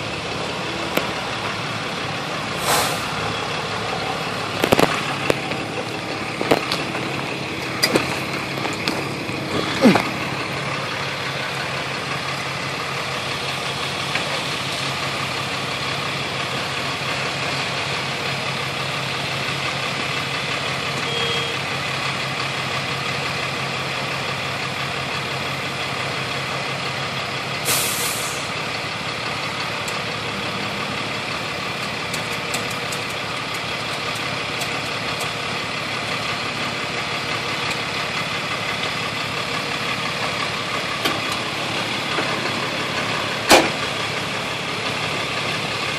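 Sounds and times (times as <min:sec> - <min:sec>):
truck engines idling: 0:00.0 - 0:45.9
air hiss: 0:02.6 - 0:03.2, 0:27.6 - 0:28.5.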